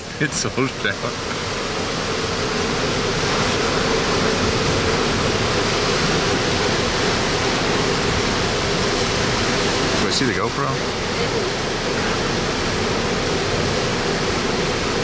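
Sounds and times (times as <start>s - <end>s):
rain: 0.0s - 15.0s.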